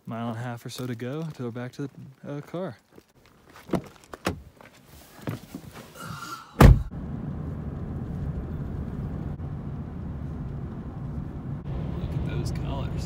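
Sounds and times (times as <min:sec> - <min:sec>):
road and engine rumble: 0:00.0 - 0:13.0
truck door slamming shut: 0:06.6 - 0:06.9.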